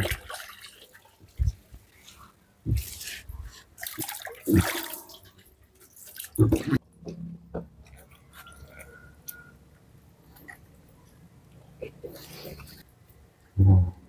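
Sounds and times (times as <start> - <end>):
water splashing: 0.0 - 1.6, 3.8 - 6.8.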